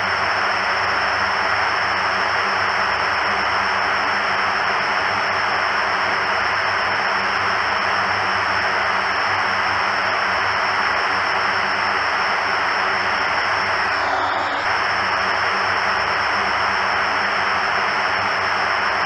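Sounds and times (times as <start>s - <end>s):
thin high whine: 0.0s - 19.0s
turboprop engines droning: 0.0s - 19.0s.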